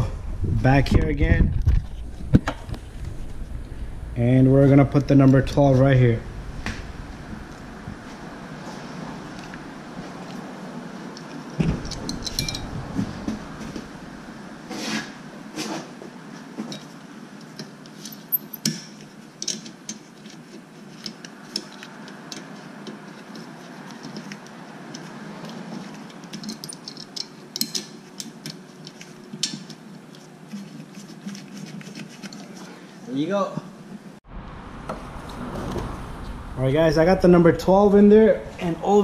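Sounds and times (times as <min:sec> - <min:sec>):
metallic clinks of bolt handling: 0:11.9 - 0:12.7.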